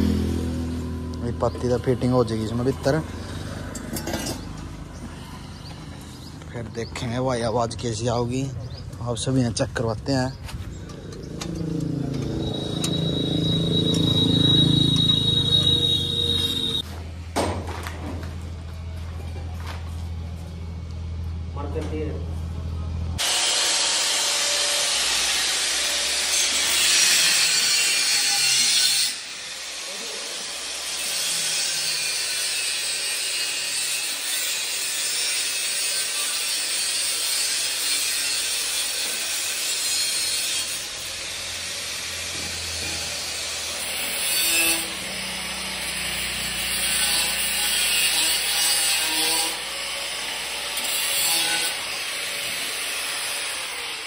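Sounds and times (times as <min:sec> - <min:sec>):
angle grinder cutting steel pipe: 0:11.1 - 0:16.8, 0:23.2 - 0:54.0.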